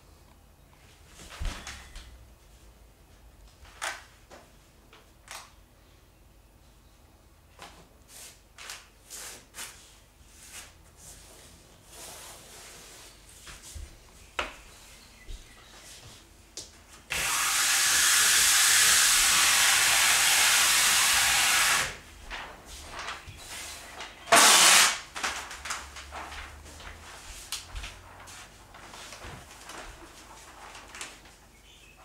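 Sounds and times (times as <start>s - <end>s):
tape rustling and crinkling: 22.0s - 32.0s
masking tape ripping: 24.2s - 25.8s.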